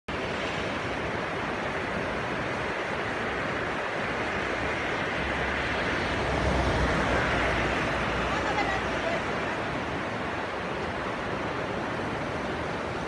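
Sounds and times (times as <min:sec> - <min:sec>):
river water rushing: 0:00.1 - 0:13.0.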